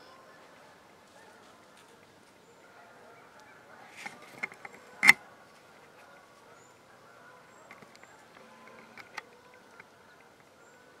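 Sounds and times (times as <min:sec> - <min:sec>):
rustles in dry leaves: 0:00.0 - 0:02.6.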